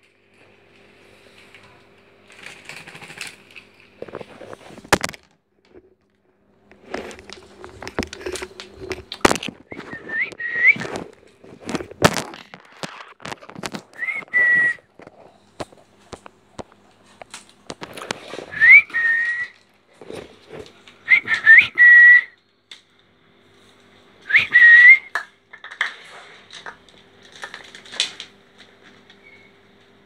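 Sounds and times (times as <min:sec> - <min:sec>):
rising whistles: 0:09.7 - 0:11.0, 0:13.9 - 0:14.9, 0:18.5 - 0:19.6, 0:21.1 - 0:22.4, 0:24.3 - 0:25.2.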